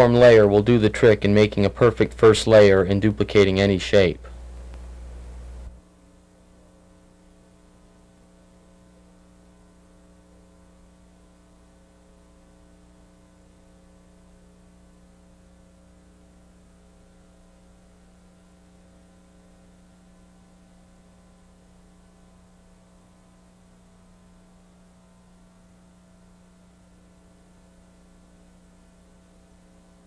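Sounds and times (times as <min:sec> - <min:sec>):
low electrical hum: 0:00.0 - 0:30.0
light hiss: 0:04.2 - 0:05.8.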